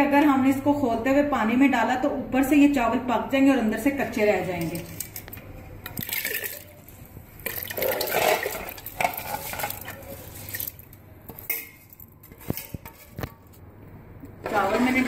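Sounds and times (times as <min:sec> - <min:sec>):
metal bowl clinking against pot: 0:07.4 - 0:13.6.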